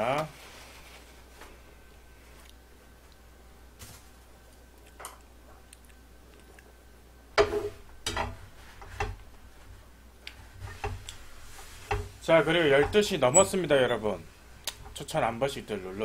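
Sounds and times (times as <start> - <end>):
paper towel being moved: 0.3 - 1.6.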